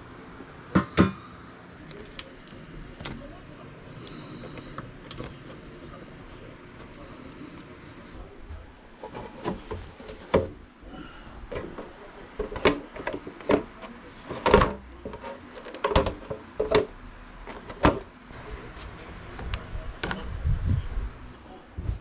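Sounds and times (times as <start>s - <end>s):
hard objects knocking and clicking: 11.5s - 16.9s.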